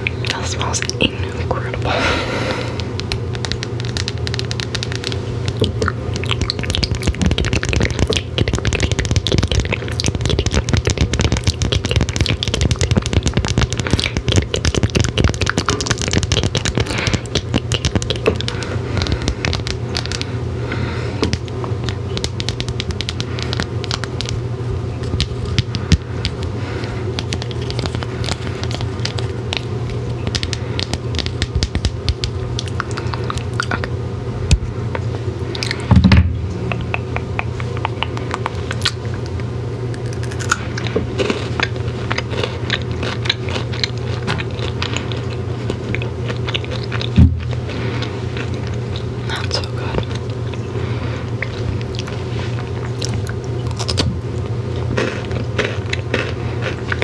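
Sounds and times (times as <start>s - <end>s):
fingernails tapping on crinkly wrapper: 2.8s - 20.3s, 21.2s - 24.4s, 27.2s - 33.8s.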